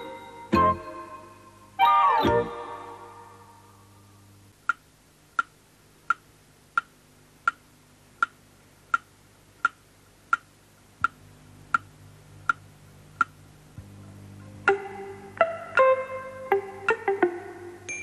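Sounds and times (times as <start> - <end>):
faint low hum: 0.0 - 18.0
clock ticking: 8.2 - 11.9.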